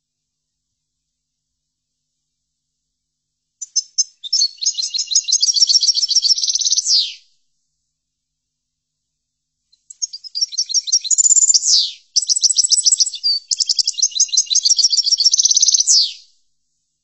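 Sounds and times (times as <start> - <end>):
finch singing: 3.6 - 7.2, 9.8 - 16.2.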